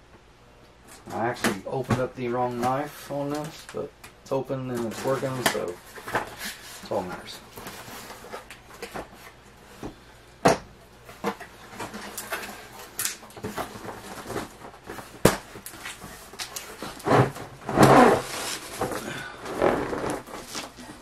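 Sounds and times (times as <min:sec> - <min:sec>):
cardboard scraping rustle: 0:04.7 - 0:08.5, 0:15.8 - 0:21.0.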